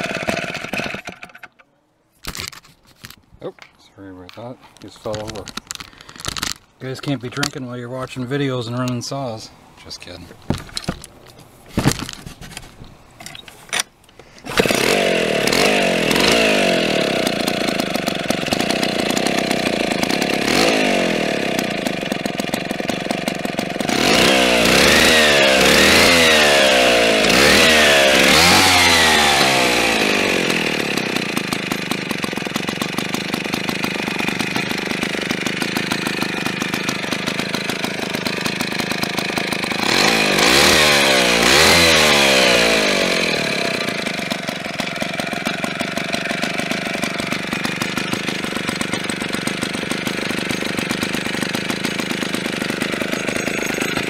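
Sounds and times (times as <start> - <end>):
chainsaw engine revving: 0.0 - 1.6, 14.4 - 54.0.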